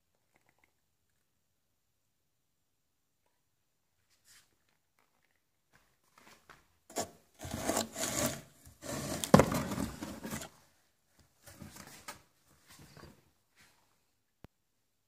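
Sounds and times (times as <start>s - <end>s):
scraping on cardboard: 6.9s - 10.6s.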